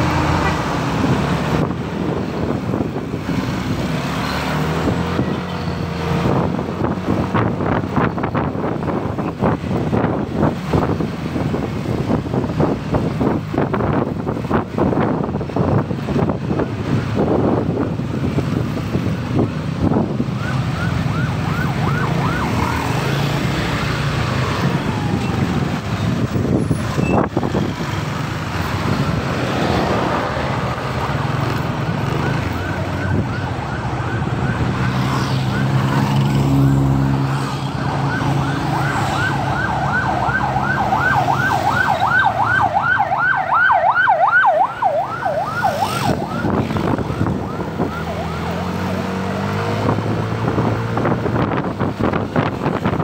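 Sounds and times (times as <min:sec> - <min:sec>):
traffic: 0:00.0 - 0:53.0
yelp siren: 0:20.4 - 0:23.2, 0:24.5 - 0:26.0, 0:32.0 - 0:36.1, 0:36.7 - 0:49.2.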